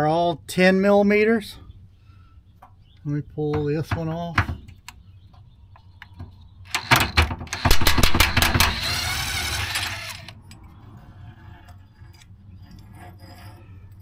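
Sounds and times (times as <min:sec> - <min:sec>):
impact gun hammering: 0:06.8 - 0:08.8.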